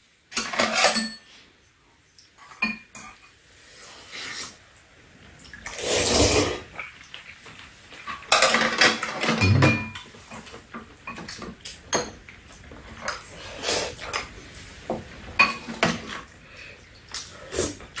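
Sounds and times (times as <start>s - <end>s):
spoons and chopsticks clinking on bowls: 0.3s - 1.3s, 8.0s - 10.1s.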